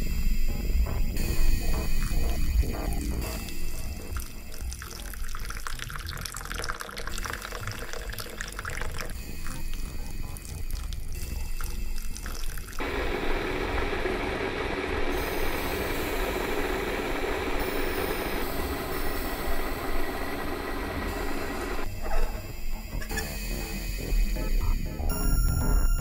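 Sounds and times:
liquid pouring into mug: 4.1s - 12.9s.

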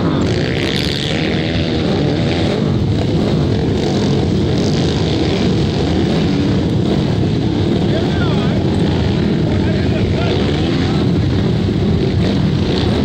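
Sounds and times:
racing motorcycle engines revving: 0.0s - 13.0s.

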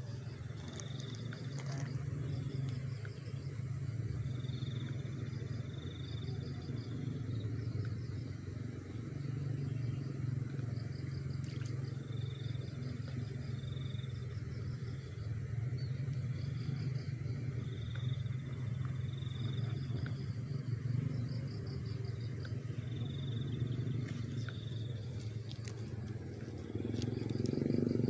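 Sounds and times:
low rumble: 0.0s - 28.0s.

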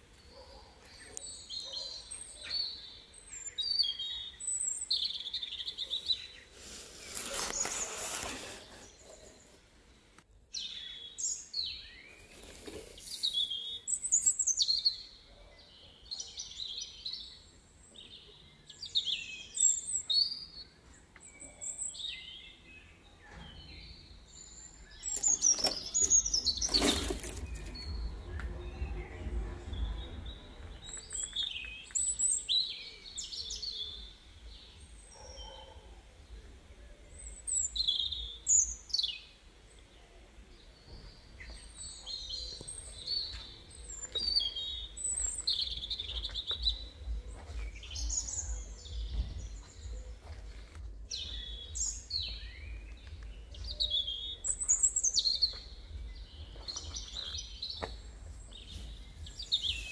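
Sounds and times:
small birds chirping: 0.0s - 59.9s
steady low rumble: 27.4s - 31.1s.

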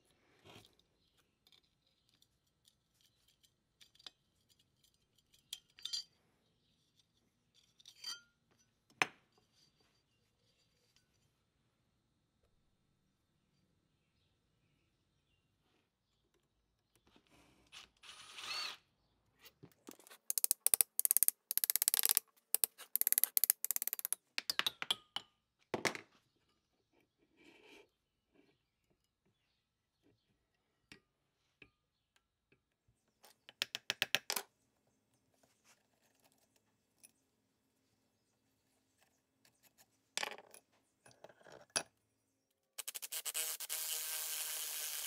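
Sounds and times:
wrench rapid metallic clicking: 20.1s - 24.2s.

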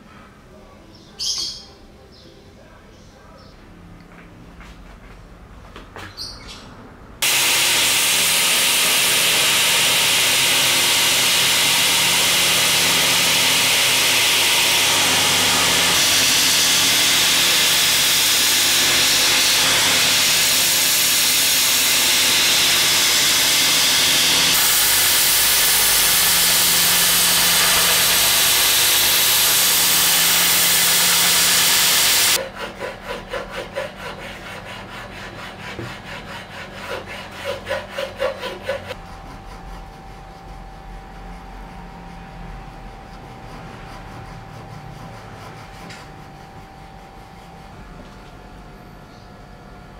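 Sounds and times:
belt grinder grinding wood: 7.2s - 32.4s
hand file rasping on wood: 7.2s - 39.7s.

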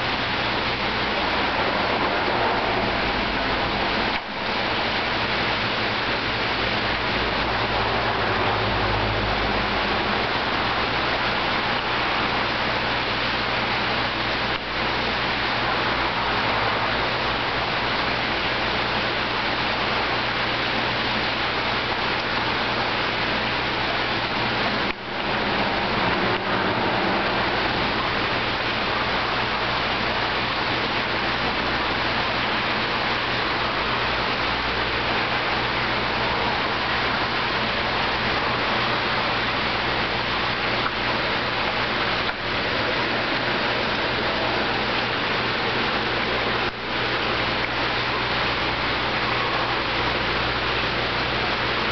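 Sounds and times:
low steady hum: 0.0s - 51.9s
water rushing into tank: 0.0s - 51.9s.

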